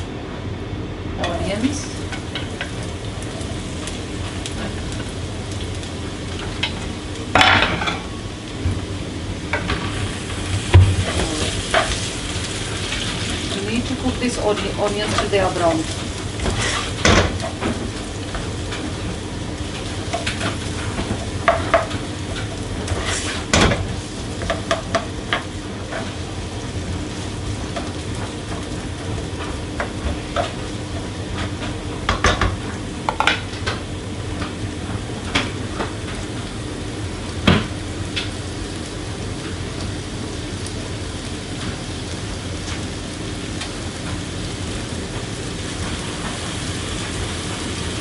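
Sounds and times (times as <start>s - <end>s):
onions sizzling in oil: 0.0s - 48.0s
spatula scraping a pan: 16.4s - 17.0s, 22.8s - 23.5s.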